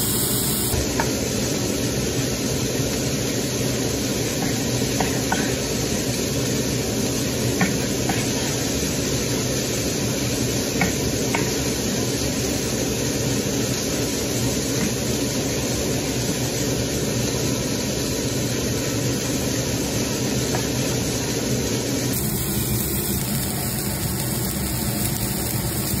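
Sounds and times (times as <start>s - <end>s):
steady rushing hiss: 0.0s - 0.9s, 22.0s - 26.0s.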